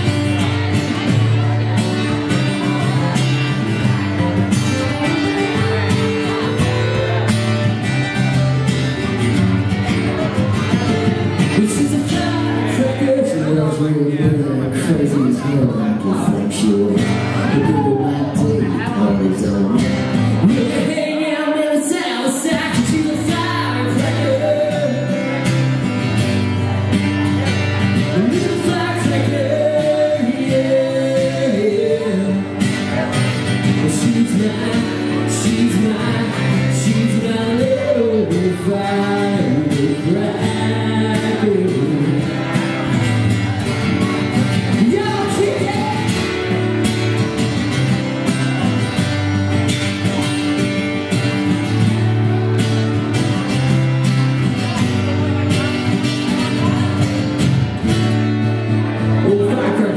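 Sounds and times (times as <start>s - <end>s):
acoustic guitars strummed: 0.0s - 59.9s
person singing: 10.9s - 25.7s, 28.0s - 42.7s, 43.6s - 46.6s.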